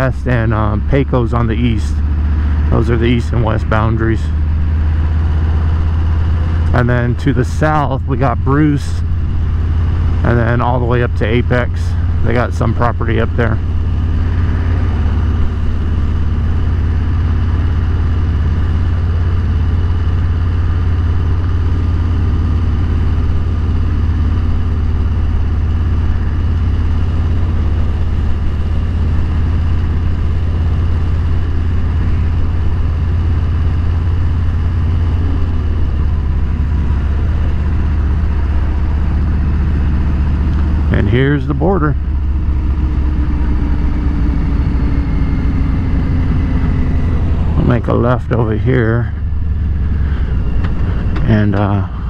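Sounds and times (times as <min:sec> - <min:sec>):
motorcycle engine rumble: 0:00.0 - 0:52.0.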